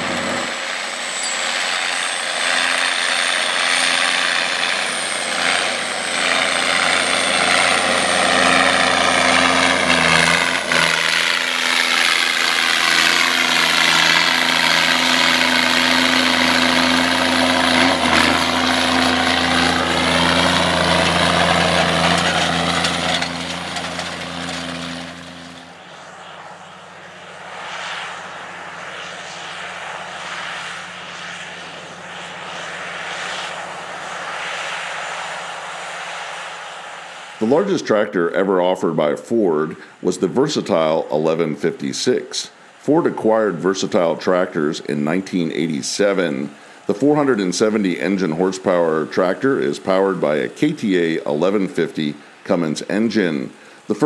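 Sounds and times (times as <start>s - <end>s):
tractor diesel engine running: 0.0s - 27.6s, 39.2s - 54.0s
distant tractor engine: 0.0s - 54.0s.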